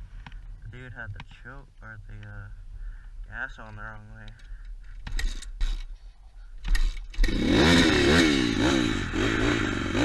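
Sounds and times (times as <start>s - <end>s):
motorbike engine revving: 6.6s - 10.0s.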